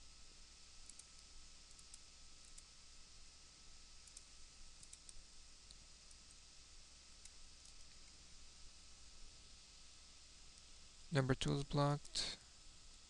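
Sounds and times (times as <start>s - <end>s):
low steady hiss: 0.0s - 13.0s
mouse and keyboard clicks: 0.9s - 2.7s, 4.0s - 5.2s.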